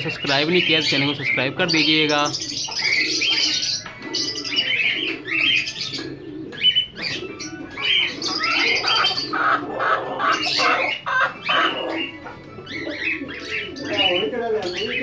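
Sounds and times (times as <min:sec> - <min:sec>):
partridges calling: 0:00.0 - 0:15.0.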